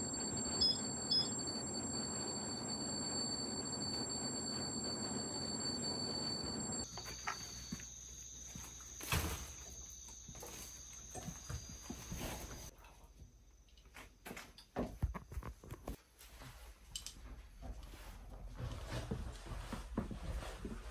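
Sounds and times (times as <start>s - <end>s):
faint high whine: 0.0s - 12.7s.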